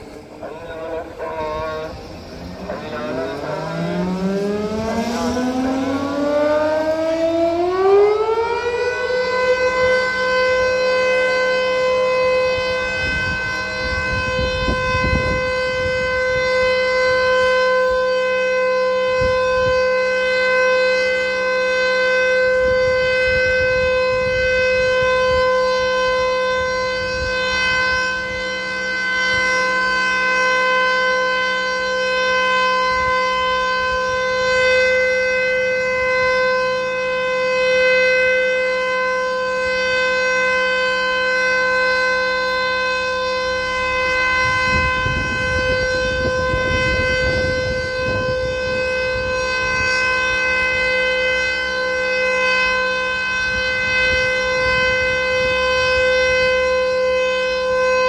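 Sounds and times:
warning siren steady tone: 0:00.0 - 0:58.0.

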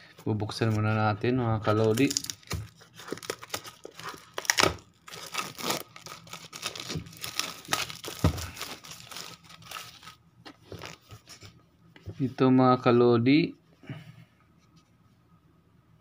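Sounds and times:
plastic shrink wrap crinkling: 0:01.7 - 0:11.4.

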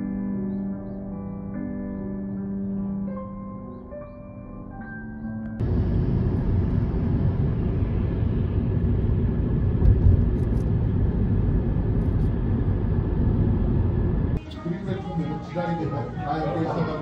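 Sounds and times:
car road and wind noise: 0:05.6 - 0:14.4
low thump: 0:09.8 - 0:10.5.

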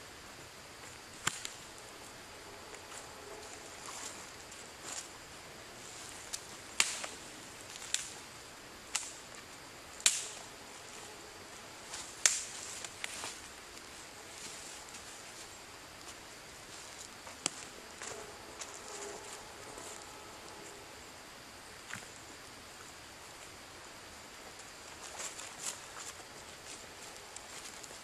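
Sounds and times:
footsteps on wet forest floor: 0:00.8 - 0:08.0, 0:10.7 - 0:20.9, 0:24.4 - 0:28.0
twigs snapping: 0:01.2 - 0:01.8, 0:06.3 - 0:08.2, 0:08.9 - 0:09.4, 0:10.0 - 0:10.4, 0:11.9 - 0:15.1, 0:17.3 - 0:20.6.

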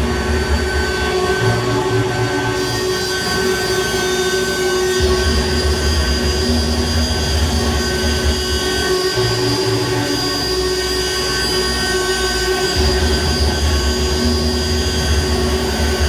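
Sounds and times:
droning electronic noise: 0:00.0 - 0:16.0
steady held tones: 0:00.0 - 0:16.0
heavy low rumble: 0:05.0 - 0:16.0.

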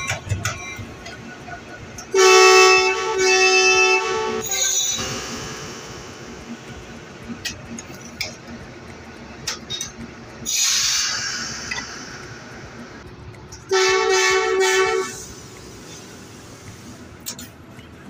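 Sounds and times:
locomotive air horn blast: 0:02.1 - 0:05.2, 0:13.7 - 0:15.4
air brakes hissing: 0:04.4 - 0:06.4, 0:10.5 - 0:12.9, 0:14.9 - 0:17.5.

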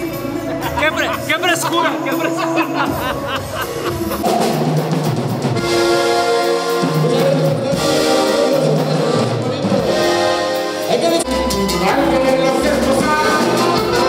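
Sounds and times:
drums: 0:00.0 - 0:14.0
horns holding chords: 0:00.0 - 0:14.0.

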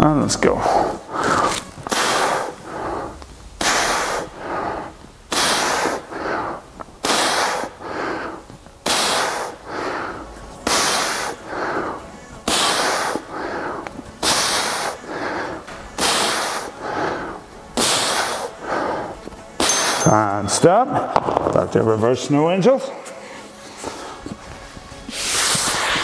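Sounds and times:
man breathing hard: 0:00.5 - 0:20.1, 0:22.9 - 0:26.0.

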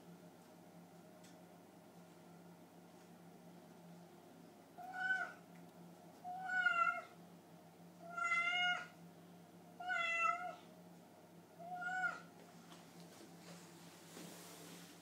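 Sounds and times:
cat meowing: 0:04.8 - 0:05.4, 0:06.3 - 0:07.1, 0:08.0 - 0:08.9, 0:09.8 - 0:10.6, 0:11.6 - 0:12.3.

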